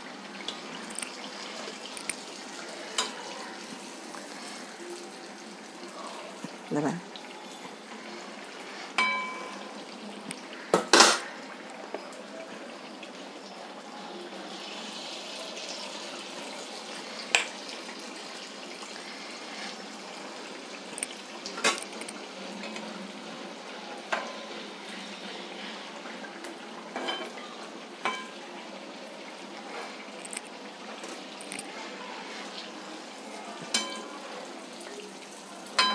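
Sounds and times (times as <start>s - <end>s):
food deep-frying in hot oil: 0.0s - 35.9s
metal utensil clinking against pan: 9.0s - 9.7s, 33.7s - 34.2s.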